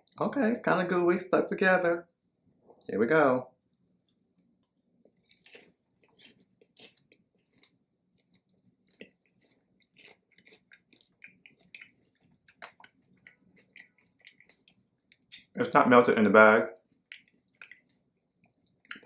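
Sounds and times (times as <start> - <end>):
person chewing popcorn: 3.6 - 15.6, 16.8 - 19.0.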